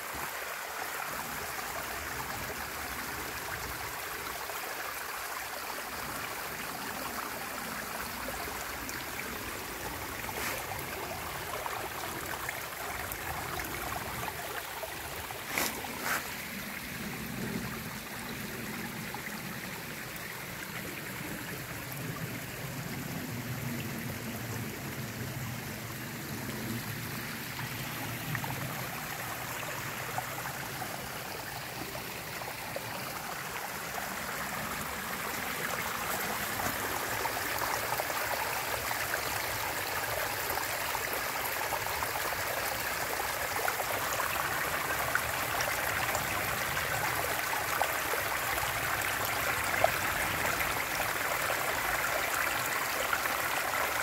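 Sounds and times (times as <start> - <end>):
brook trickling over stones: 0.0 - 54.0.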